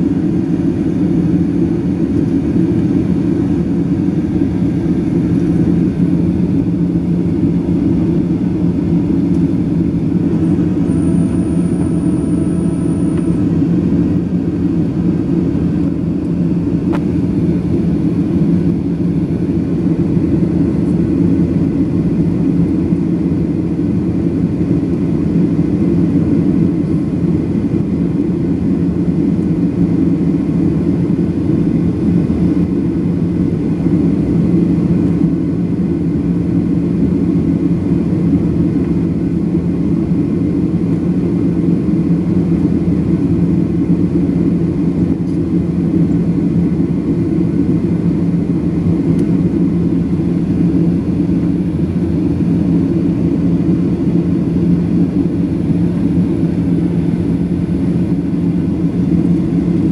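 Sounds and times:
airliner cabin drone: 0.0s - 59.9s.

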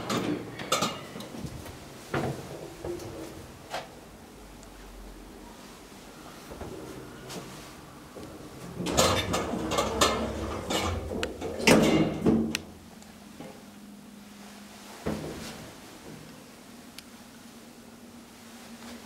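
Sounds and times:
low steady hum: 0.0s - 19.0s
elevator doors banging shut: 8.8s - 12.6s.

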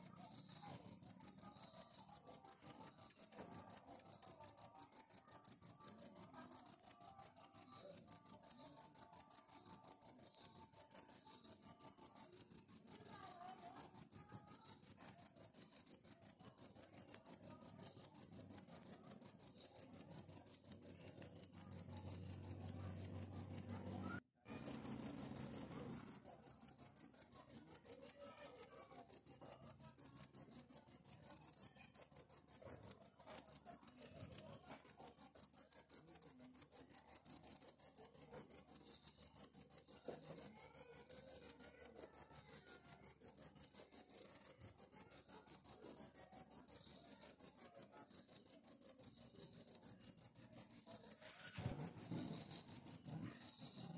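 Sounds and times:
cricket chirping: 29.2s - 53.9s.

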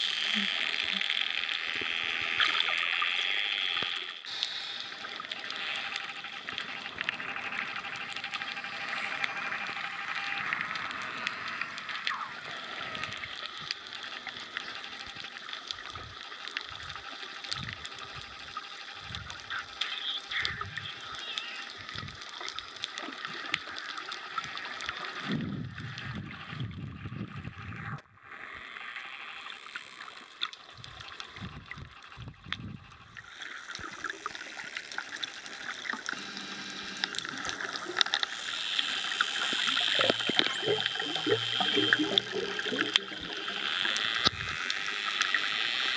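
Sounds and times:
water gurgling and whooshing: 24.4s - 28.0s, 39.4s - 44.8s
dolphin clicks: 37.0s - 45.9s.

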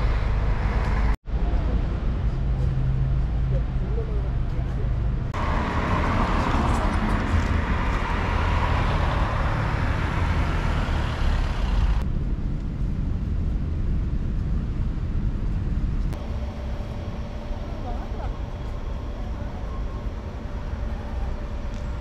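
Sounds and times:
low traffic rumble: 0.0s - 22.0s
cars driving past: 4.6s - 12.0s.

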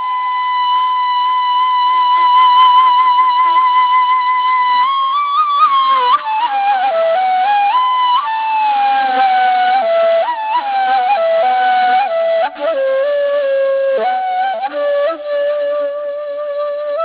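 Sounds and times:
solo flute melody: 0.0s - 17.0s.

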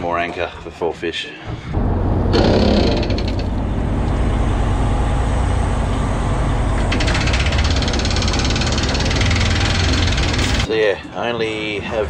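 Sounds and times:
boat diesel engine running: 1.8s - 10.7s.

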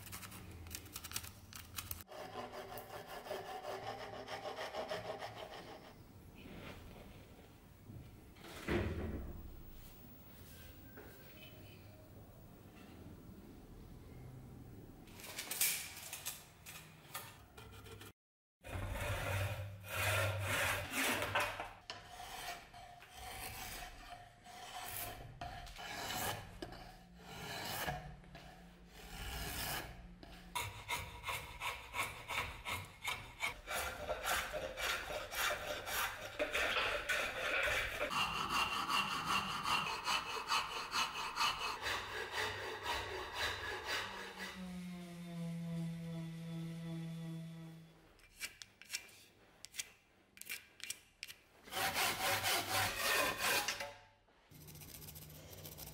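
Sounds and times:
rasp scraping wood: 18.7s - 47.6s, 51.7s - 53.9s.

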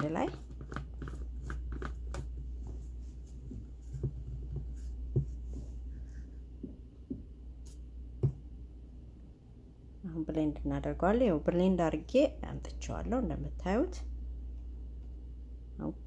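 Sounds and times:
plastic rubbing and knocking: 0.0s - 5.8s.

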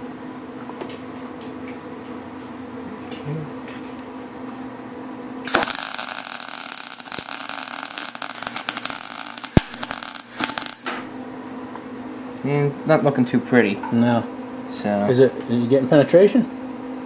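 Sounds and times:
welding arc crackling: 5.5s - 11.0s.

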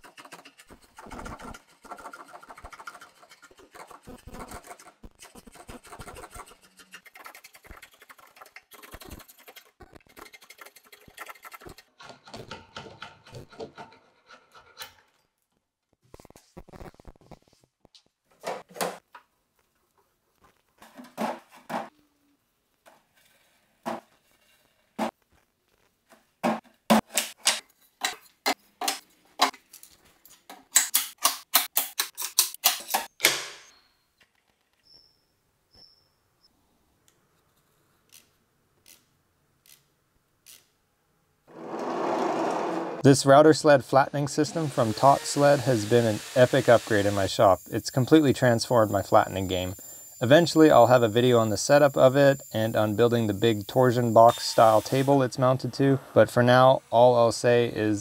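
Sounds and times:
metal clamps clicking and knocking: 6.0s - 15.2s, 27.0s - 33.4s
steel scraping on wood: 44.2s - 48.2s, 50.6s - 56.7s.

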